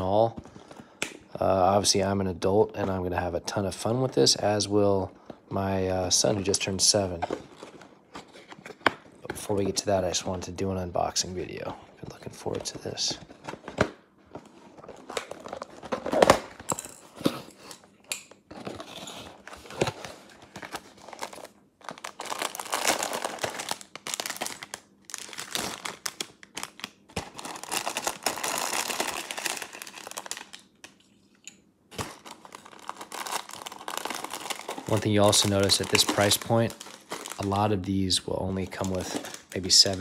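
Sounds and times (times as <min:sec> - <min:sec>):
plastic wrapping crinkling and tearing: 0:18.6 - 0:31.1, 0:31.9 - 0:40.0.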